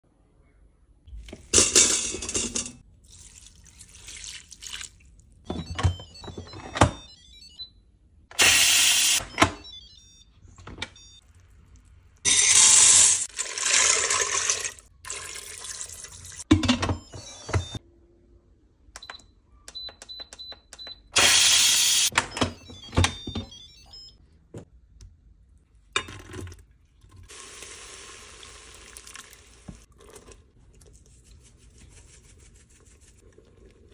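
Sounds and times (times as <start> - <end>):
liquid pouring into pot: 3.0 - 5.1, 12.8 - 16.4, 27.3 - 30.4
short electronic beeps: 5.5 - 7.8, 8.4 - 11.2, 19.0 - 24.2.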